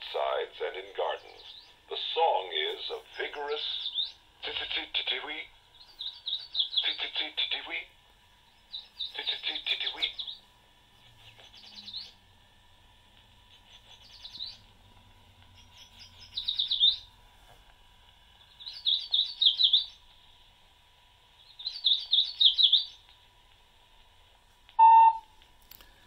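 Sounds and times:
faint steady tone and hiss: 0.0 - 26.0
bird song from small speaker: 0.2 - 12.3, 13.4 - 17.1, 18.3 - 20.6, 21.3 - 23.2, 24.8 - 25.2.

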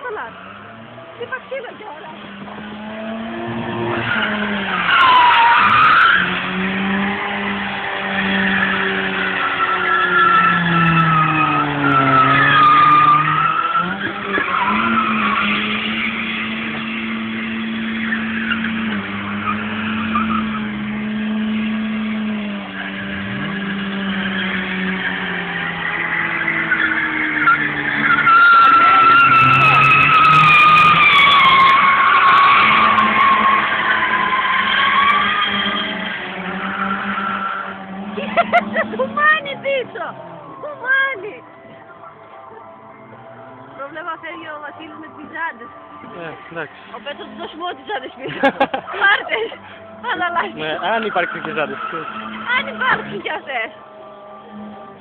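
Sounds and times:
car engine revving: 0.0 - 55.0
tyres squealing: 0.0 - 55.0.

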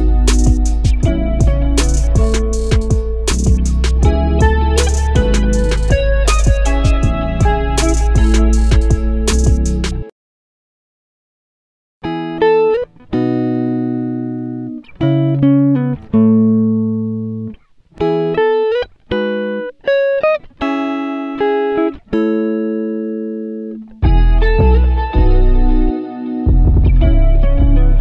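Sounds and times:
accompaniment and bass: 0.0 - 10.1, 24.0 - 28.0
plucked-string melody: 0.0 - 10.1, 12.0 - 28.0.

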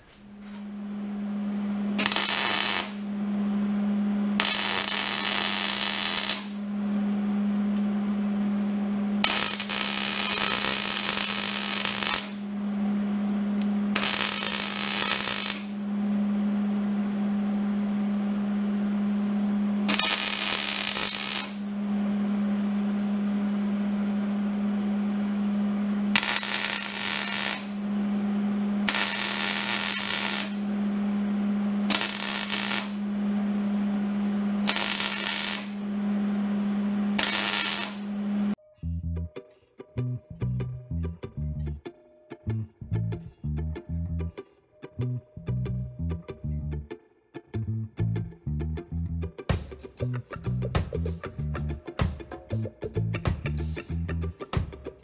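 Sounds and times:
steady low hum: 0.0 - 55.0
welding arc sizzle: 1.9 - 3.1, 4.4 - 6.7, 9.2 - 12.5, 13.5 - 15.8, 19.8 - 21.8, 25.8 - 39.8, 49.5 - 55.0.

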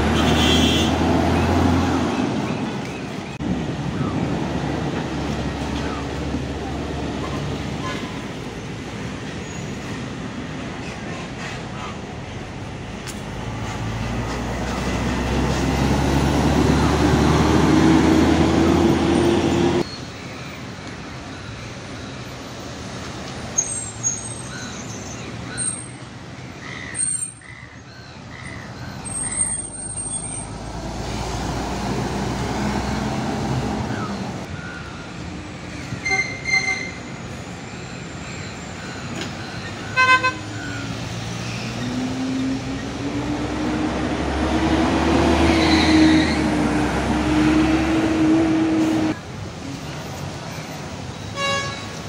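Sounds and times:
bus engine accelerating: 0.0 - 19.8, 29.2 - 34.5, 37.2 - 51.0
road traffic passing: 0.0 - 52.0.

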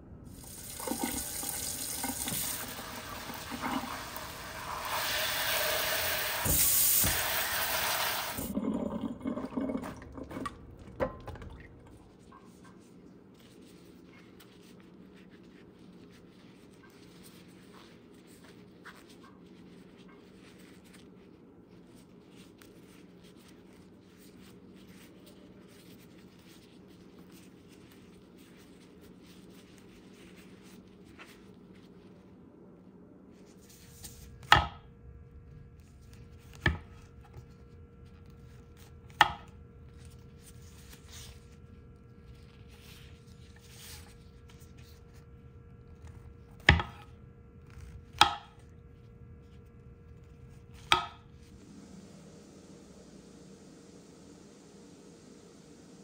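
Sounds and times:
paper towel rubbing: 0.3 - 8.5, 12.4 - 32.3, 39.9 - 45.2
tap water running: 0.3 - 12.1
low hum: 48.8 - 56.0.

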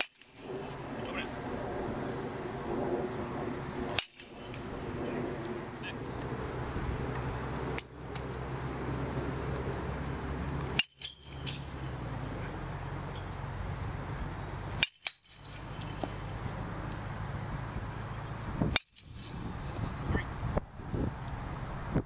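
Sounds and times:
outdoor background noise: 0.0 - 22.0
metal bat hitting ball: 3.9 - 4.3, 10.7 - 11.7, 14.8 - 16.1.

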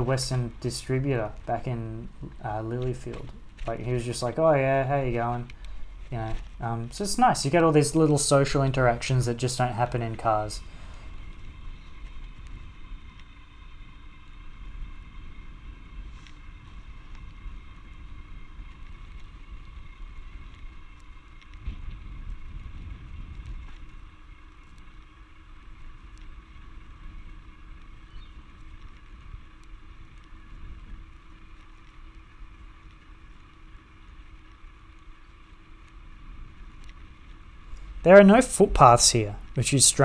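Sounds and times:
tyres rumbling: 0.0 - 11.7, 37.8 - 40.0
wind: 0.0 - 40.0.

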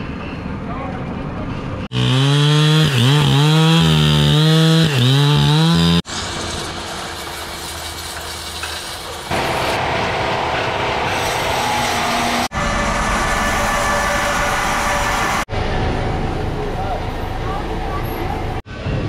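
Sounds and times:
chainsaw cutting log: 1.9 - 6.0
sawmill machine hum: 1.9 - 8.7, 9.3 - 18.6
water spray hiss: 6.5 - 9.6.

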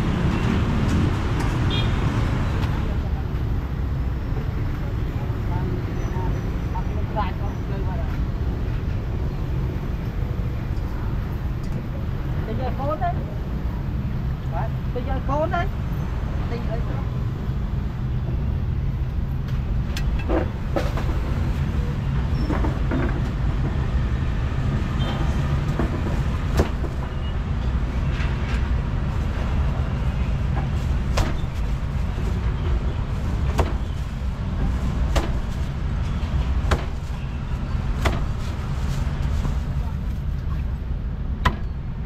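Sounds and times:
street traffic rumble: 0.0 - 42.0
cleaver chopping on wooden block: 36.7 - 37.0.

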